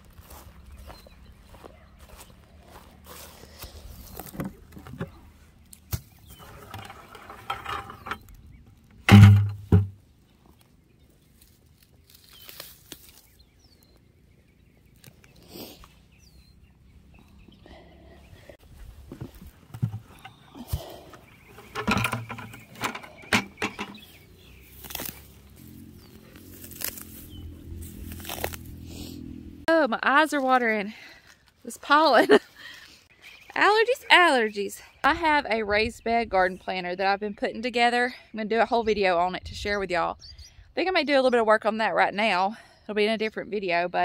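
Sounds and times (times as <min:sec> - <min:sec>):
plastic bucket scraping: 0:06.2 - 0:08.3, 0:09.0 - 0:10.0, 0:19.1 - 0:24.1
rustling: 0:09.0 - 0:13.9, 0:18.7 - 0:29.1
plastic bucket knocks and clatters: 0:09.1 - 0:10.0, 0:19.7 - 0:20.3, 0:21.6 - 0:24.0.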